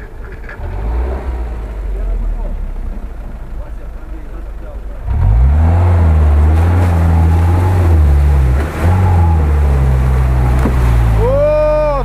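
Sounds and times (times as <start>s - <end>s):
jeep engine revving: 0.0s - 12.0s
water splashing: 5.7s - 12.0s.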